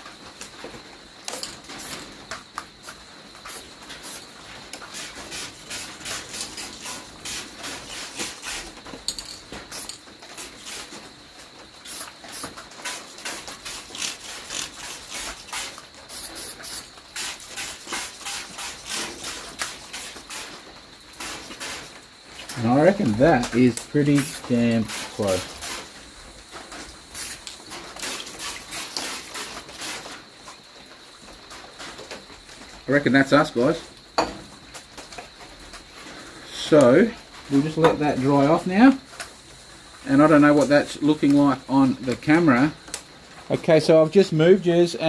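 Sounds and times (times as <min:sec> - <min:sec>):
spray paint can hissing bursts: 0:01.3 - 0:02.1, 0:02.8 - 0:04.2, 0:04.8 - 0:08.8, 0:09.7 - 0:11.0, 0:11.8 - 0:20.6, 0:21.2 - 0:22.0, 0:24.9 - 0:26.0, 0:27.1 - 0:30.1.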